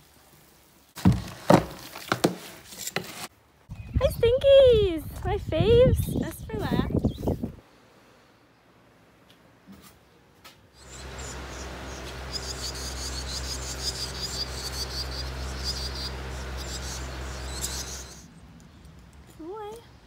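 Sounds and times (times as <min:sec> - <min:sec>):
nestlings begging chirps: 0:05.8 - 0:07.5, 0:10.8 - 0:18.4
barn fan humming: 0:10.8 - 0:18.7.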